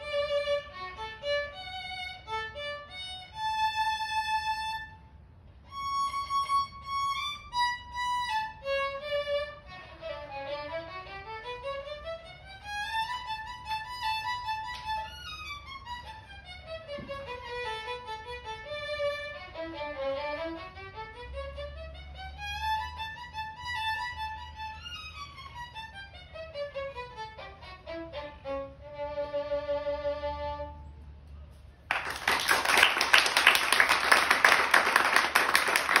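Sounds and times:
solo violin playing: 0.0s - 31.1s
loud applause: 31.9s - 36.0s.

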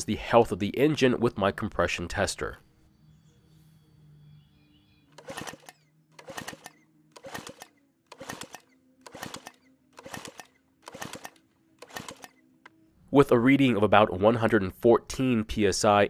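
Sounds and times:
lawn mower recoil starter pulls: 5.2s - 12.4s.

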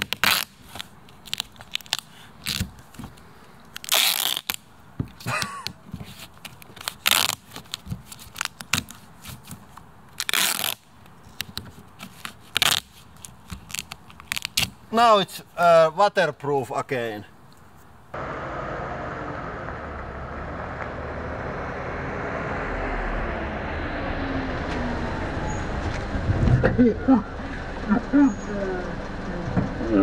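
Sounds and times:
duct tape ripping off roll: 0.0s - 2.9s, 3.7s - 4.7s, 6.1s - 14.8s
tape crackling and rubbing: 0.0s - 4.7s, 5.9s - 14.9s.

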